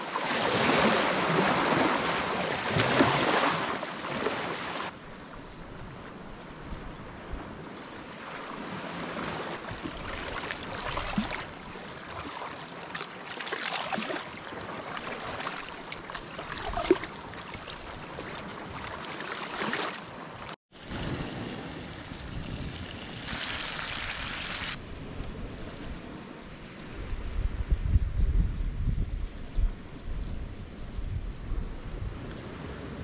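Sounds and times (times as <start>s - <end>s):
waves lapping on sand: 0.0s - 5.0s, 8.0s - 24.8s
wind gusting over microphone: 20.8s - 33.0s.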